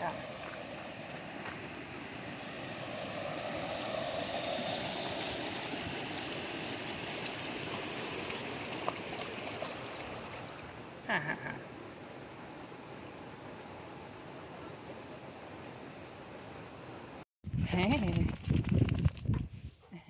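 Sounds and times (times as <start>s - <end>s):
creek water running over stones: 4.3s - 10.7s.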